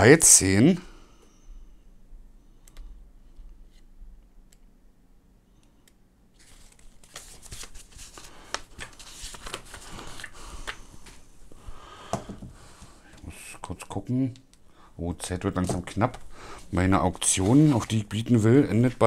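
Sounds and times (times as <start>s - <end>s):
paper pages flicking: 6.4s - 10.8s
paper rustling and crinkling: 6.4s - 11.2s, 17.2s - 19.0s.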